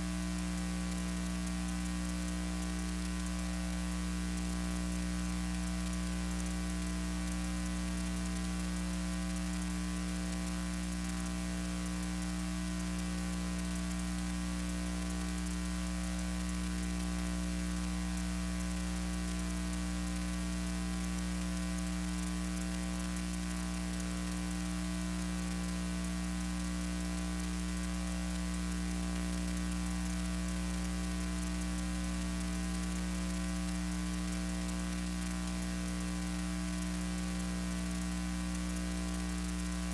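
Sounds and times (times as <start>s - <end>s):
electrical mains hum: 0.0s - 39.9s.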